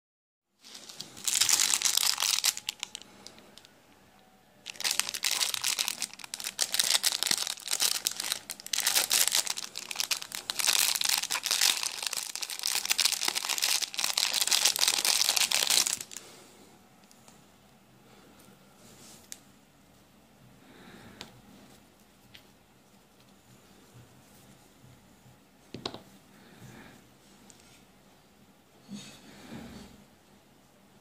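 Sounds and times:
plastic bag crinkling: 0.6s - 3.7s, 4.6s - 16.3s.

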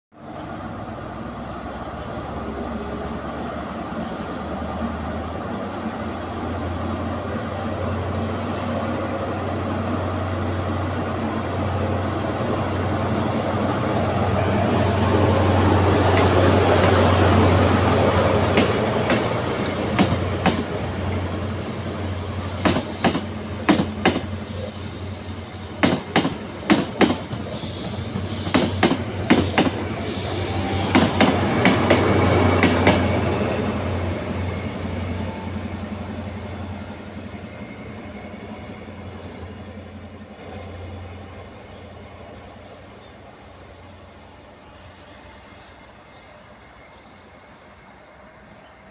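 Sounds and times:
train wheels clicking over joints: 15.9s - 33.3s.

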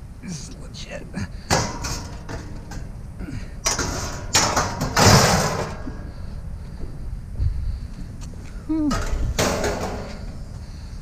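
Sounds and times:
metal bed frame clanking: 1.5s - 3.0s, 3.6s - 6.1s, 8.9s - 10.3s.

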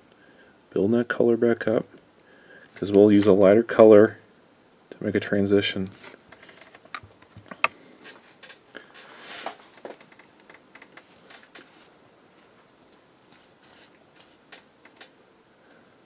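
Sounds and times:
fingers rustling on jar and brush: 10.9s - 12.6s, 13.2s - 14.5s.

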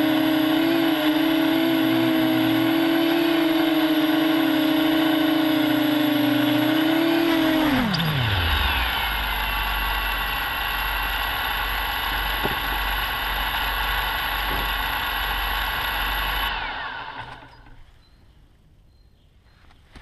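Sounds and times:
motors spinning down: 0.0s - 17.8s
quadcopter motors humming: 0.0s - 17.8s.

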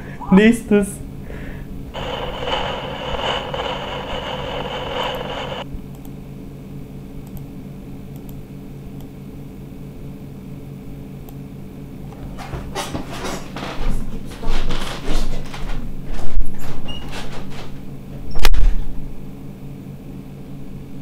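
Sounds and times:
computer fan humming: 0.0s - 14.7s
hissing noise: 1.9s - 5.6s.

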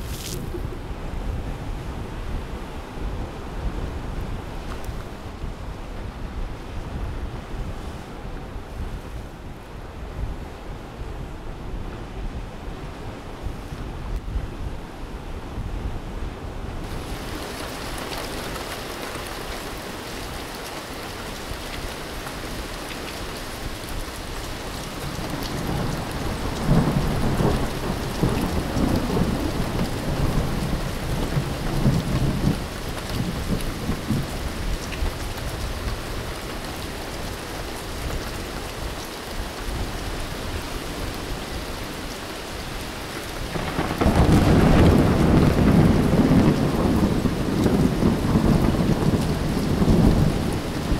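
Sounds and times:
steady rain: 0.0s - 50.9s
rolling thunder: 25.1s - 34.7s, 43.4s - 50.9s.

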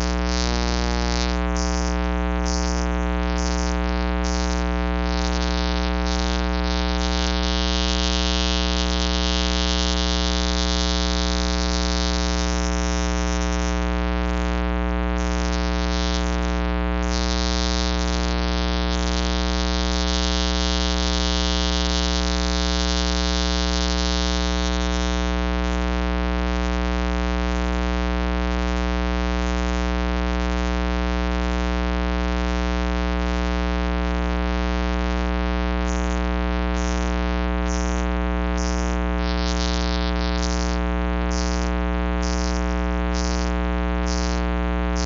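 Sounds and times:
loud electrical hum: 0.0s - 25.1s, 34.2s - 45.0s.

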